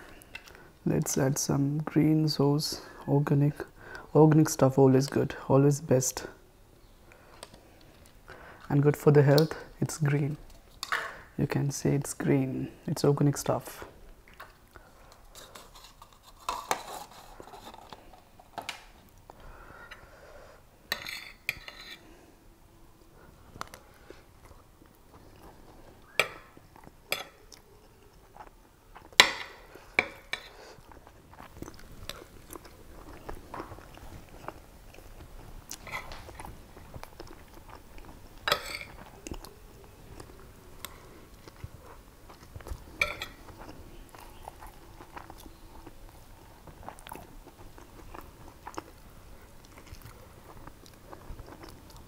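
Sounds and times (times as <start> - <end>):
metal spoon scraping a plate: 20.9 - 22.0
chewing: 23.6 - 52.0.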